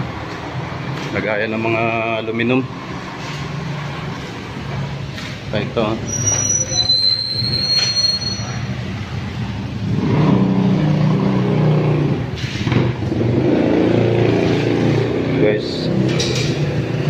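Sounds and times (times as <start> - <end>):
high steady squeal: 6.0 - 8.9.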